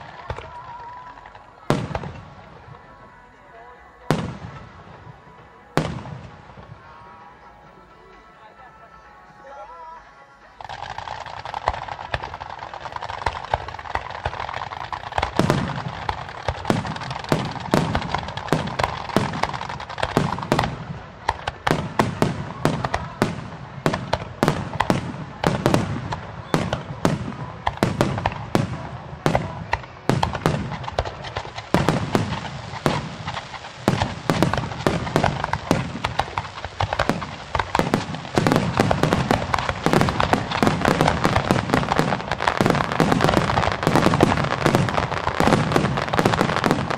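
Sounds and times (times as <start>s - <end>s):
fireworks hissing: 0.0s - 8.1s, 10.4s - 46.9s
firework shells bursting with bangs: 10.6s - 46.9s.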